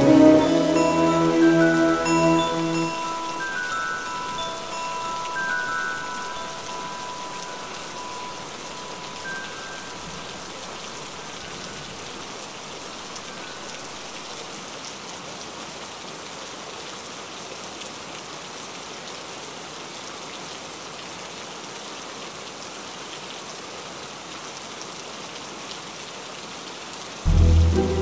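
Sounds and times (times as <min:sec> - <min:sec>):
heavy rain falling: 0:00.0 - 0:16.7, 0:24.2 - 0:28.0.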